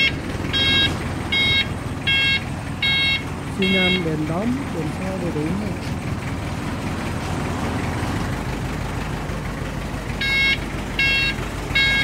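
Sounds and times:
electronic beeper beeps: 0:00.0 - 0:04.1
truck engine idling: 0:00.0 - 0:12.0.

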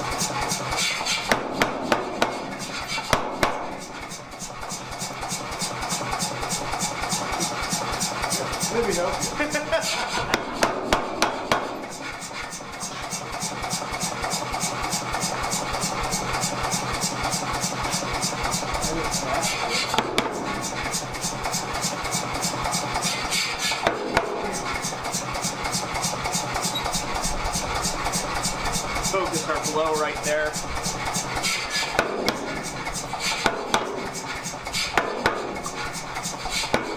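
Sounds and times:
power hammer striking steel: 0:00.0 - 0:36.9
sharp knocks: 0:01.3 - 0:03.9, 0:10.2 - 0:11.8, 0:19.9 - 0:20.5, 0:33.3 - 0:34.1, 0:34.9 - 0:35.7.

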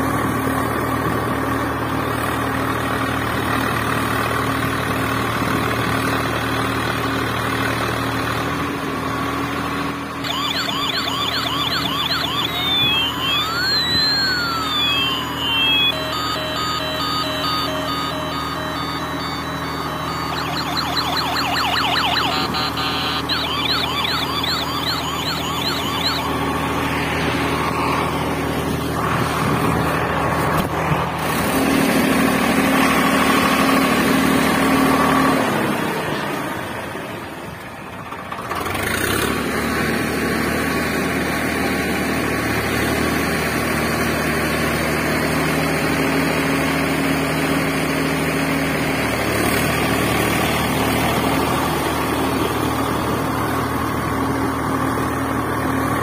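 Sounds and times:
warbling electronic siren: 0:10.2 - 0:30.0
synthetic engine drone: 0:10.2 - 0:35.8.

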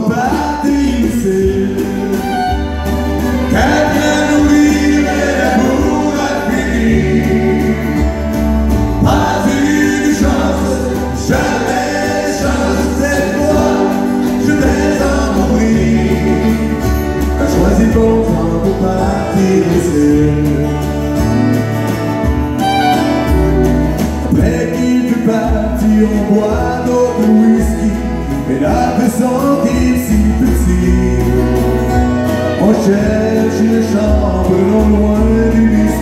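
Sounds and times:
men singing together: 0:00.0 - 0:02.1, 0:03.4 - 0:21.0, 0:24.3 - 0:36.0
acoustic guitars: 0:00.0 - 0:36.0
fiddle playing: 0:01.6 - 0:19.7, 0:20.6 - 0:24.4.

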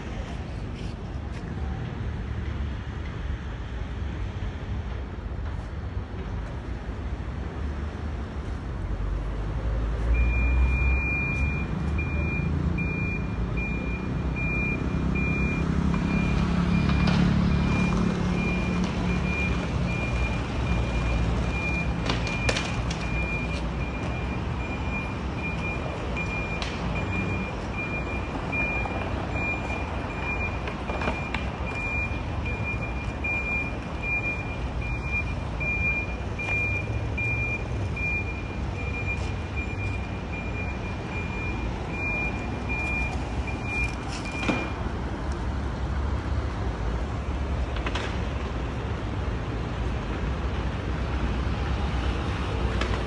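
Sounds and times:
traffic rumble: 0:00.0 - 0:53.0
short high warning beeps: 0:10.2 - 0:16.4, 0:31.2 - 0:44.8.

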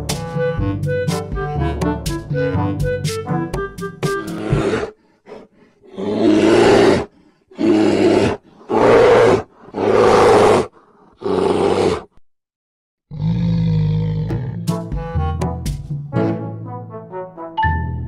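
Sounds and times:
music with low brass tone: 0:00.0 - 0:04.8, 0:14.3 - 0:18.0
bear roaring: 0:04.2 - 0:12.2, 0:13.1 - 0:14.8.

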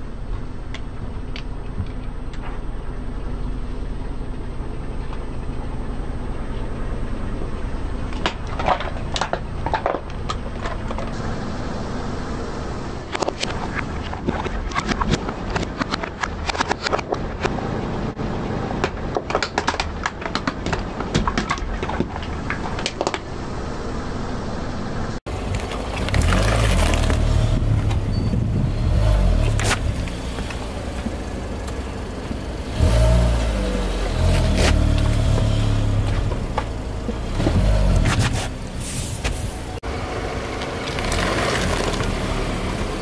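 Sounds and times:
car engine and tyre rumble: 0:00.0 - 0:43.0
plastic toys cracking under tyre: 0:13.2 - 0:17.5, 0:18.8 - 0:23.3, 0:25.4 - 0:27.4, 0:40.6 - 0:42.2.

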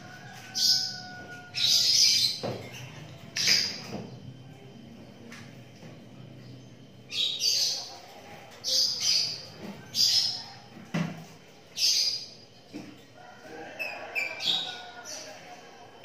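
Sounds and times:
birds squawking: 0:00.0 - 0:03.9.

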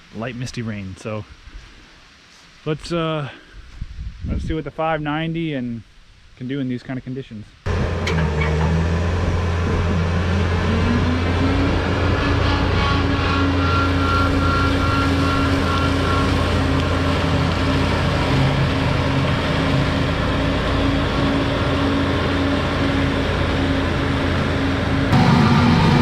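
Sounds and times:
diesel engine running under load: 0:07.7 - 0:26.0
high-pitched whine: 0:07.7 - 0:26.0
hydraulic whine: 0:07.7 - 0:26.0.

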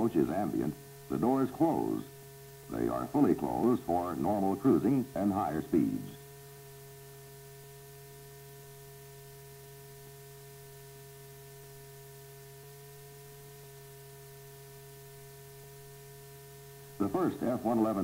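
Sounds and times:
electrical hum: 0:00.0 - 0:18.0
faint hiss: 0:00.0 - 0:18.0.

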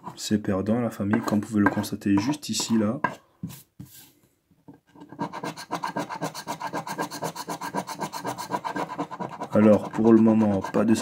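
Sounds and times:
coin scraping scratch card: 0:05.0 - 0:11.0.

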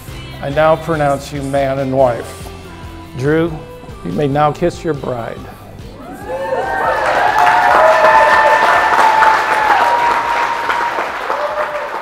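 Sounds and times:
crowd applauding and cheering: 0:05.9 - 0:12.0
long whoops: 0:06.0 - 0:12.0.

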